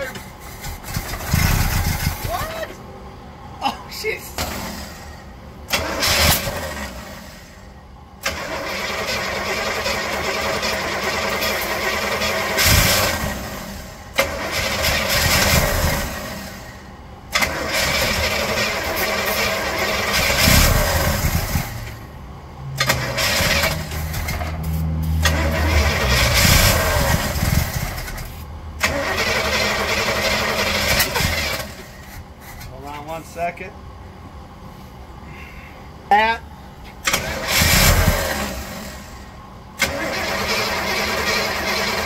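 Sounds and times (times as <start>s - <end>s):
engine starter cranking: 0.1s - 2.6s, 5.7s - 7.5s, 8.2s - 22.0s, 22.7s - 32.7s, 36.9s - 39.2s, 39.8s - 42.0s.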